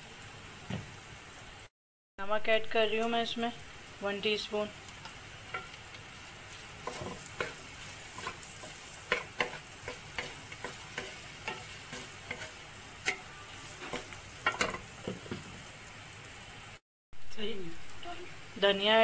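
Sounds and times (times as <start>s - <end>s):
faint sizzle: 0.0s - 19.0s
spatula scraping metal pan: 6.8s - 14.8s.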